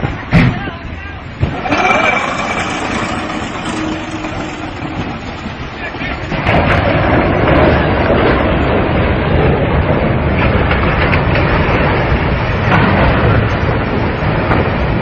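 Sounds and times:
low rumble: 0:01.2 - 0:15.0
ship crashing and grinding: 0:01.4 - 0:09.1.

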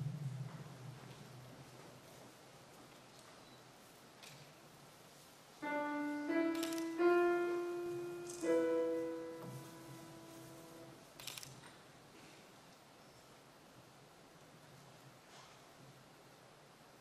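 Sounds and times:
piano notes: 0:05.6 - 0:11.1.

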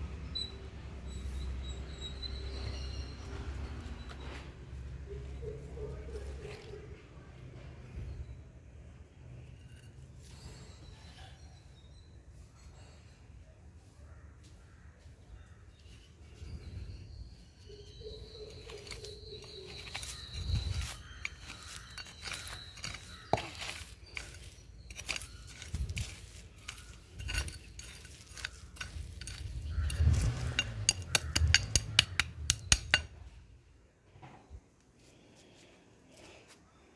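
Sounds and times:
sharp clicks and clinks: 0:18.4 - 0:33.3.

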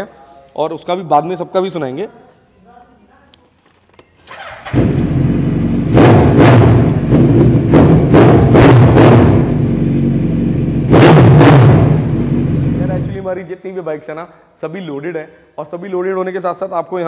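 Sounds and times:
motorcycle engine revving: 0:04.3 - 0:13.2
motorcycle engine idling: 0:04.4 - 0:06.0.

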